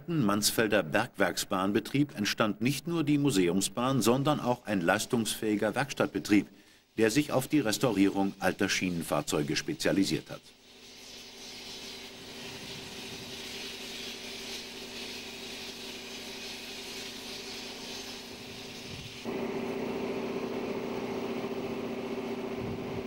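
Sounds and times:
hiss: 6.6s - 19.3s
two-tone mechanical hum: 19.2s - 23.0s.

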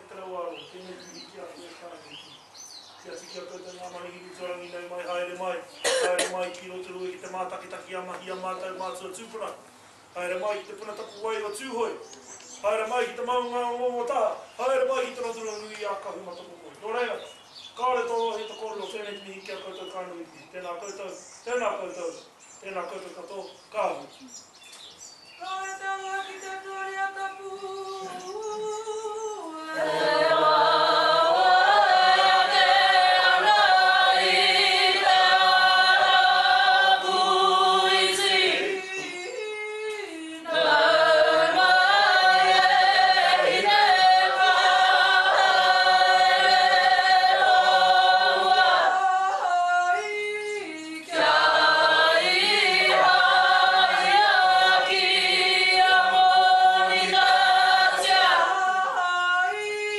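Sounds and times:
group singing unaccompanied: 25.4s - 59.9s
lead voice singing: 25.4s - 59.9s.

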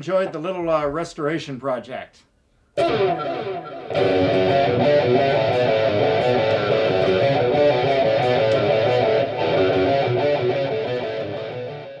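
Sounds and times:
picked guitar notes: 2.8s - 12.0s.

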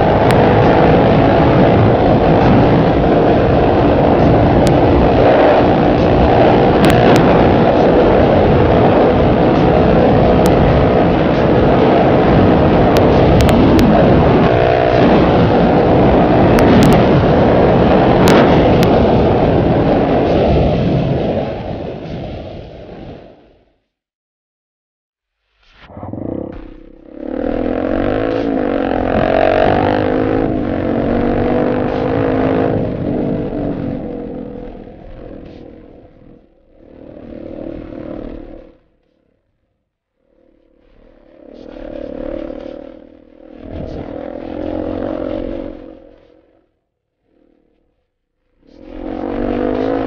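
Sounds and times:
motorcycle engine running: 0.0s - 21.8s, 25.9s - 50.0s
wind buffeting microphone: 0.0s - 23.4s, 43.5s - 46.0s.

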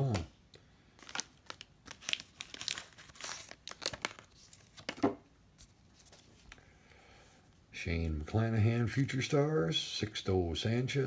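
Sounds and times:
wrapper crinkling and tearing: 1.0s - 5.0s.

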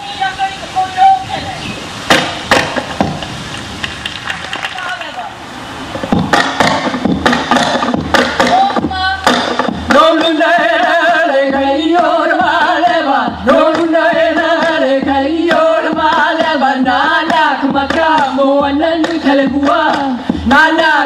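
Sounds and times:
low drumbeat: 2.1s - 4.0s, 6.0s - 20.5s
person chanting held vowels: 8.4s - 13.7s.

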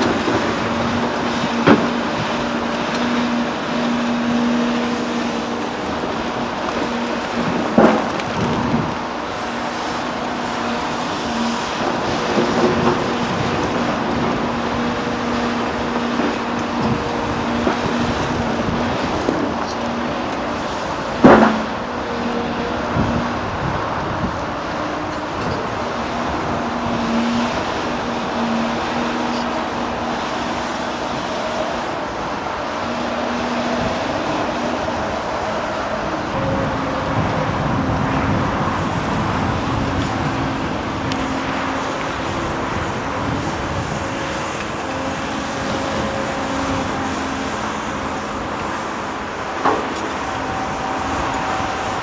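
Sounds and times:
excavator diesel engine: 0.0s - 52.0s.

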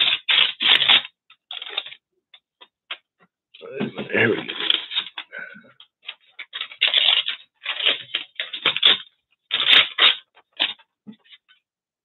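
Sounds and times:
paper rustling and crinkling: 0.0s - 2.0s, 4.1s - 11.6s.

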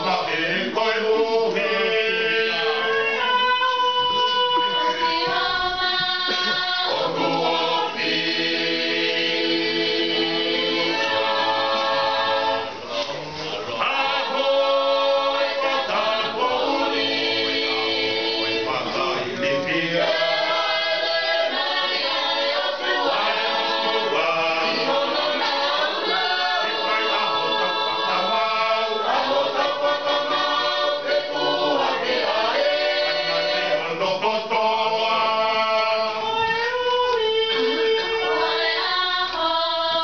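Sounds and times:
choir singing a hymn unaccompanied: 0.0s - 40.0s.

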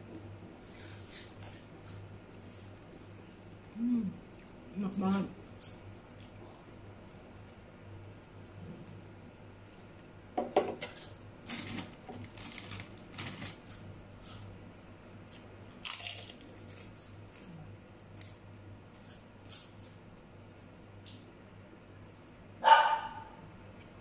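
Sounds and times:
crackers crunching when chewed: 11.0s - 14.5s, 15.2s - 20.0s.

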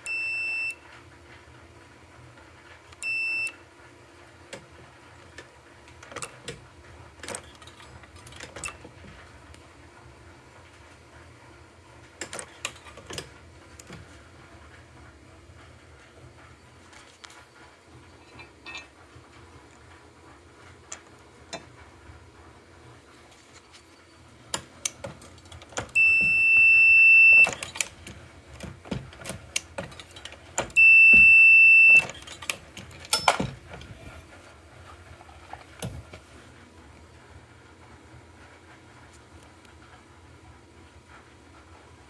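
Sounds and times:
reloading press clicks and clunks: 7.2s - 9.1s, 12.2s - 14.2s, 24.5s - 34.2s.

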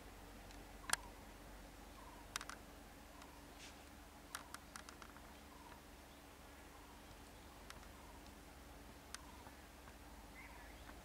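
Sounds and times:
faint sharp clicks: 0.4s - 1.1s, 1.9s - 2.6s, 3.2s - 5.8s, 7.1s - 8.4s, 9.1s - 10.0s.

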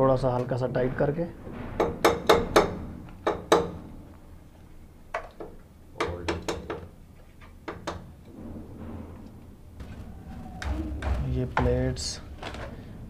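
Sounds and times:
spanner knocking on metal: 1.8s - 3.8s, 5.2s - 6.9s.

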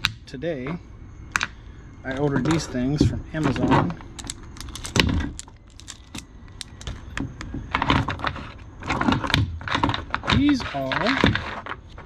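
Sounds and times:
metal sockets clicking and rattling: 3.4s - 7.1s.

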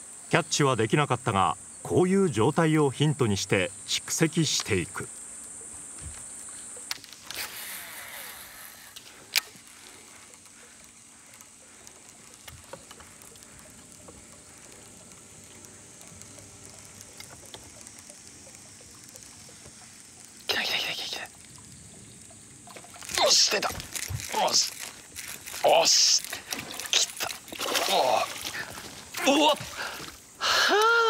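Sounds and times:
high-pitched insect buzz: 0.0s - 31.0s
small ticks: 0.2s - 31.0s
sharp clicks: 6.2s - 27.7s.

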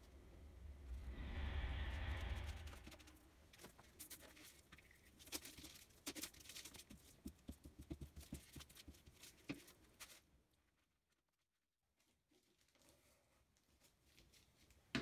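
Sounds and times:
paper and card rustling: 2.8s - 10.3s.

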